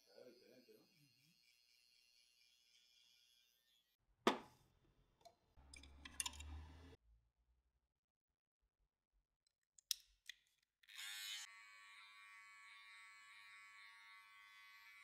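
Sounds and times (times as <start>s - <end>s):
electric clipper humming: 10.9s - 15.0s.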